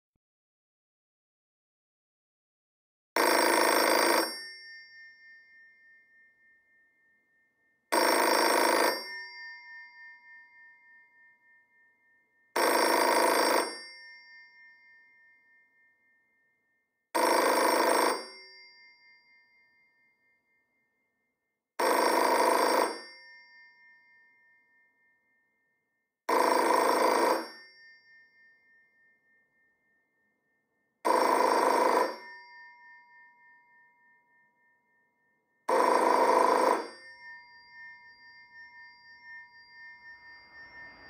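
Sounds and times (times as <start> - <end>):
telephone bell ringing: 3.2 - 6.6, 7.9 - 11.6, 12.6 - 15.8, 17.2 - 19.8, 21.8 - 24.7, 26.3 - 29.4, 31.0 - 34.2, 35.7 - 41.0.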